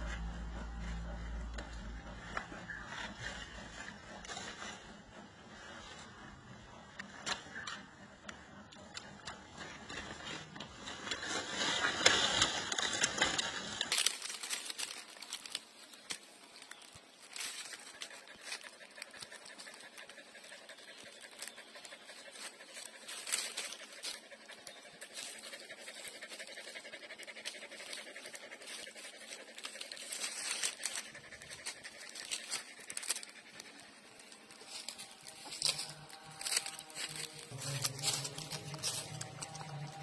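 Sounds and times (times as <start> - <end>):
puppies sucking and smacking: 12.7 - 40.0.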